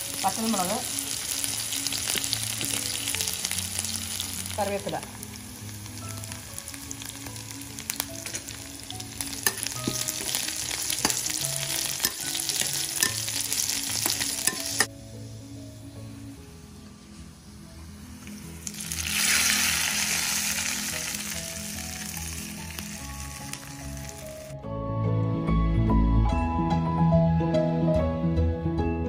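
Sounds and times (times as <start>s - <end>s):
shallots sizzling in hot oil: 0.0s - 16.4s, 17.0s - 24.6s
metal spoon clicking against pan: 12.0s - 13.3s, 14.0s - 14.9s.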